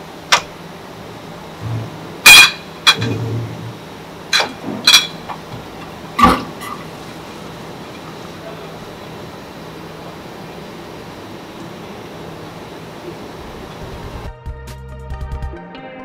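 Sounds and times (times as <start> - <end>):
faint machine hum: 0.0 - 14.5
glass bottles clinking: 2.3 - 3.5, 4.4 - 5.6.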